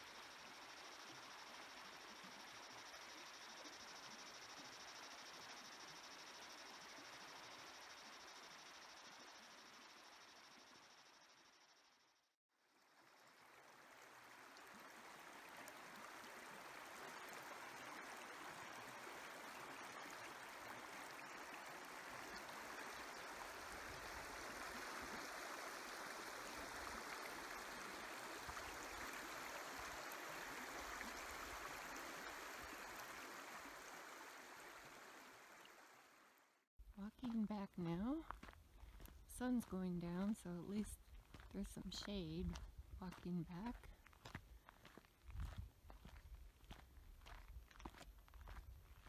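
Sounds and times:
river water rippling over rocks: 13.4 - 36.2.

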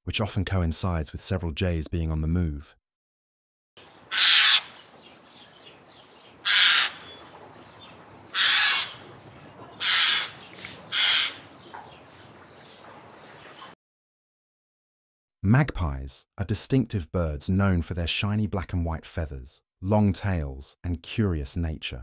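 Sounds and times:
jay harsh raspy calls: 4.0 - 4.9, 6.4 - 7.3, 8.3 - 11.7.

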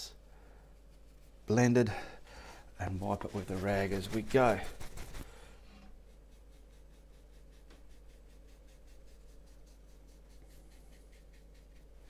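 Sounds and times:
steady low hum: 0.0 - 12.0
brush swishing on canvas: 2.6 - 12.0.

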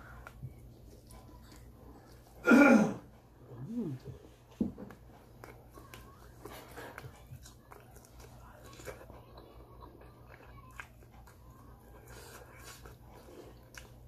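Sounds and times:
chewing and lip-smacking: 0.0 - 2.4, 3.9 - 14.0
woman coughing: 2.4 - 3.1.

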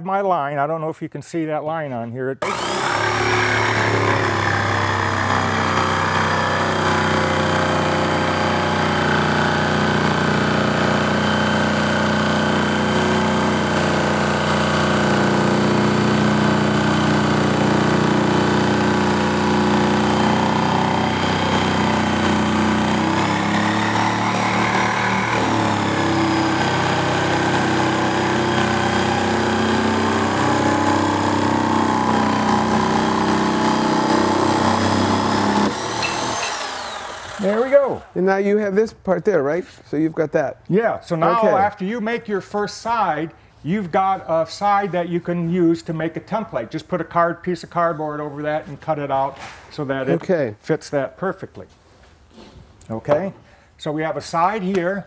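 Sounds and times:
jigsaw cutting wood: 2.4 - 38.3, 41.2 - 41.7.

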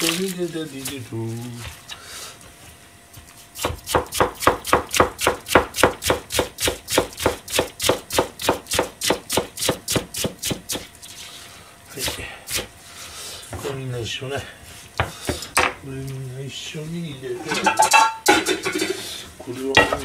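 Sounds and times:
knife chopping cabbage on board: 3.1 - 10.9.

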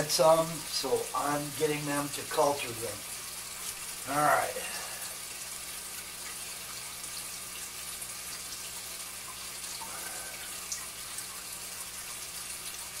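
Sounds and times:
water rushing: 9.6 - 11.4.

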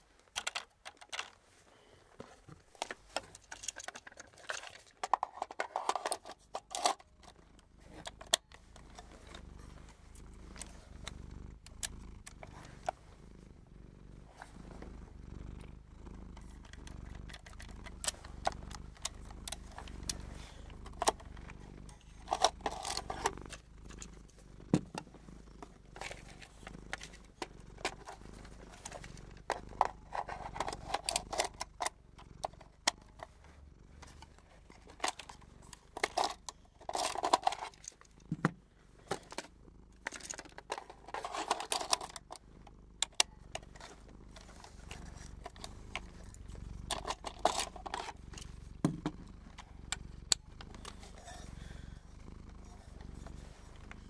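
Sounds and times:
scratchy handling noises: 0.0 - 13.6, 14.2 - 54.0.

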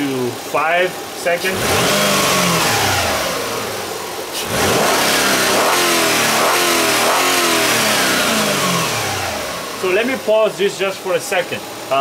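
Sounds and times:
car engine revving: 1.3 - 10.8.

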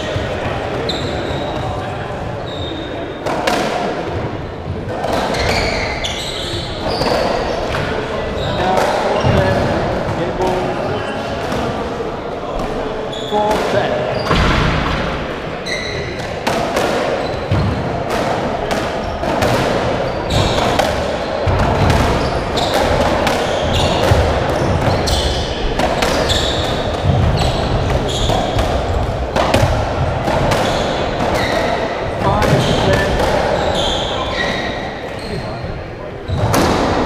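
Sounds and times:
shoes squeaking on wooden floor: 0.0 - 1.8, 2.4 - 3.2, 5.3 - 11.4, 13.0 - 14.5, 15.6 - 16.2, 21.5 - 29.1, 30.6 - 36.9
ball hitting walls and floor: 13.4 - 34.1.

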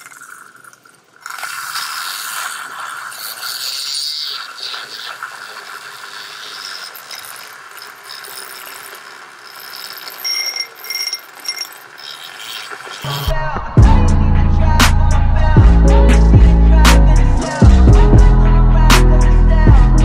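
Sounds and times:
milk frother whirring: 0.0 - 13.3
loud music: 13.1 - 20.0.

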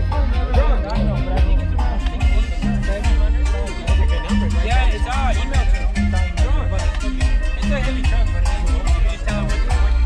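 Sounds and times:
heavy bass line: 0.0 - 10.0
steady drum beat: 0.0 - 10.0
person singing: 6.2 - 10.0.

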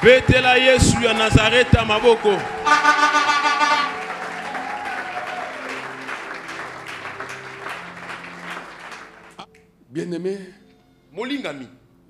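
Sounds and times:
congregation clapping and cheering: 0.0 - 9.5.

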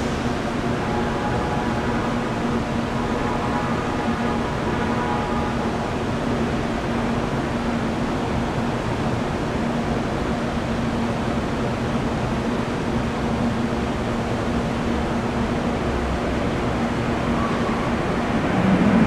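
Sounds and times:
jet engines running: 15.6 - 19.0.

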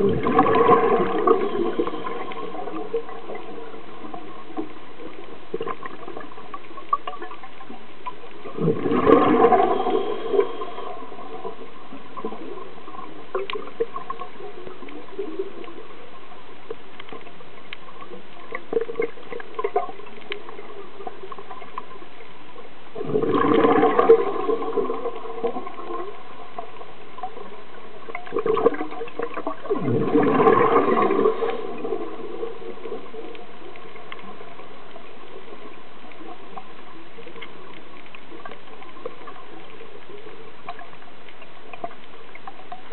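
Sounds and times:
underwater breath bubbling: 0.0 - 4.8, 8.4 - 16.1, 23.0 - 26.8, 28.2 - 35.7
steady hiss: 9.3 - 23.0.

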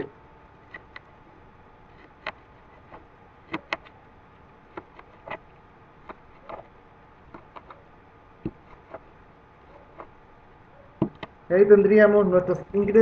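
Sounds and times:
knife chopping on tabletop: 8.4 - 9.0.

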